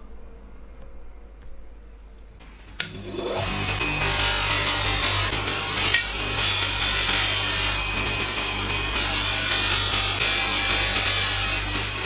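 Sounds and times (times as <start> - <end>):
faint low hum: 0.0 - 2.8
bench grinder motor: 2.8 - 12.0.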